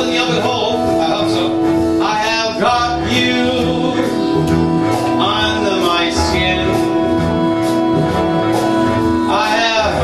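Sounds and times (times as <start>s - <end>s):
amplified backing music: 0.0s - 10.0s
man singing into microphone: 2.0s - 7.4s, 9.1s - 10.0s.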